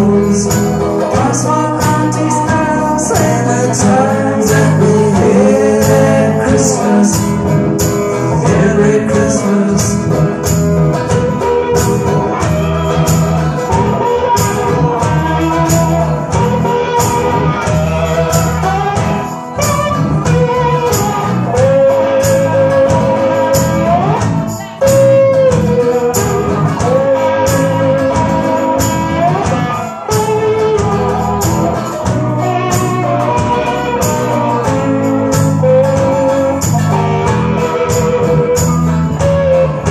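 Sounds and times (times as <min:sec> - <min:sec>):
bending lead guitar melody: 0:00.0 - 0:39.9
live rock band playing: 0:00.0 - 0:39.9.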